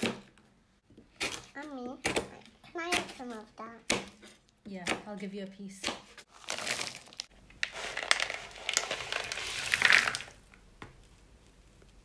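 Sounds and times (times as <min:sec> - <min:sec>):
knife chopping on plastic board: 0:00.0 - 0:05.2, 0:05.8 - 0:06.2
pieces clattering from plastic bowl: 0:06.5 - 0:10.4.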